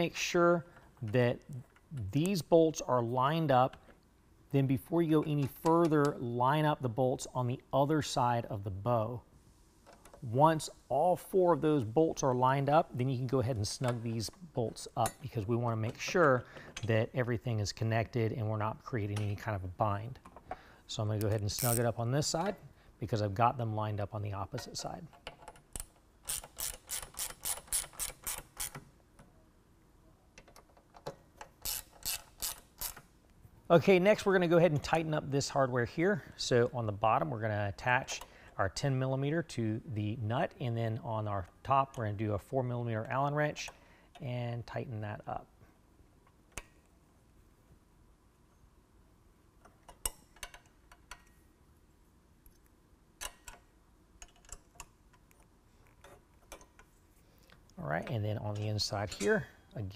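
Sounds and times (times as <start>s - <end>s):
metallic clicks of tools: 25.1s - 29.3s, 49.6s - 51.4s, 52.5s - 57.7s
hand ratchet clicking: 25.2s - 28.8s, 30.4s - 33.1s.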